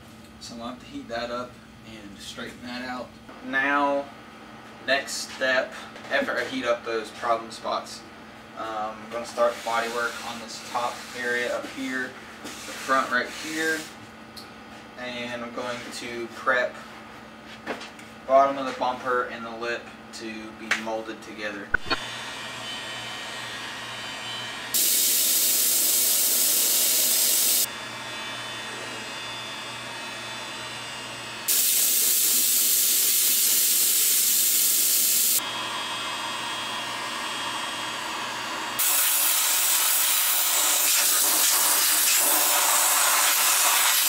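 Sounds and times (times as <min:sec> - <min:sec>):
heat gun fan whirring: 0:00.0 - 0:44.0
compressed air hissing: 0:24.7 - 0:27.7, 0:31.5 - 0:35.4, 0:38.8 - 0:44.0.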